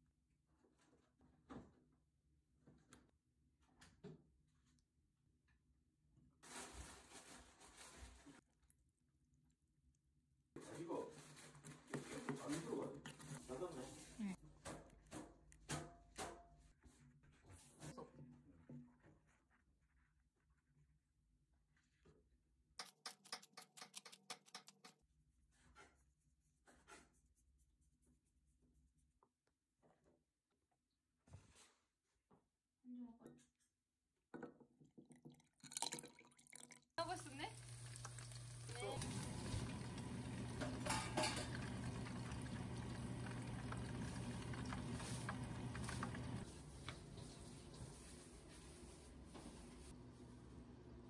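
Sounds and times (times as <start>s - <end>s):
shrimp deep-frying in oil: 37.0s - 46.4s
soft scrapes: 44.8s - 50.0s.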